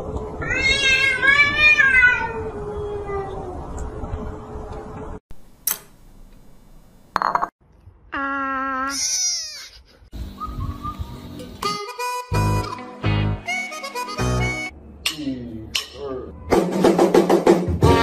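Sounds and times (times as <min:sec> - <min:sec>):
cat yowling: 0:00.4 - 0:03.4.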